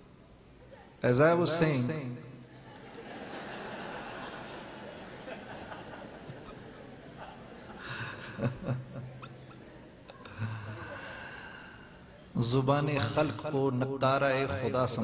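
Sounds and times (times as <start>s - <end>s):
audience laughing: 2.5s - 11.1s
man chuckling: 5.0s - 9.6s.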